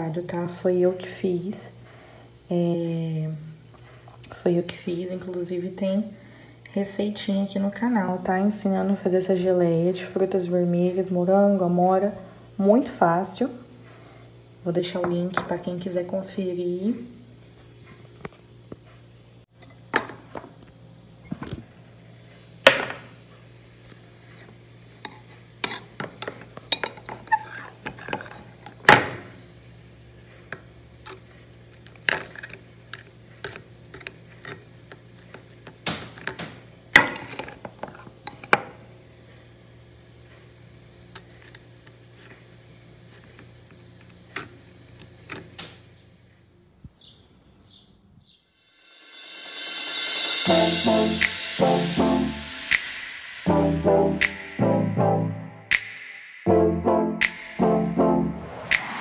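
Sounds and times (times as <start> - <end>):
steady low hum: 48.8 - 59.0.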